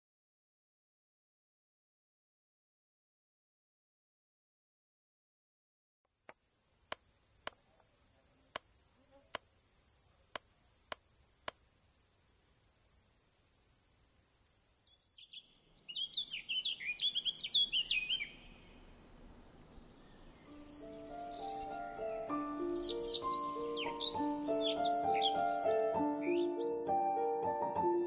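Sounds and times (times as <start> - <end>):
steady high-pitched hiss: 6.1 - 15.8, 17.3 - 24.8
sharp ticks: 6.2 - 14.5
songbirds chirping and twittering: 6.2 - 26.9.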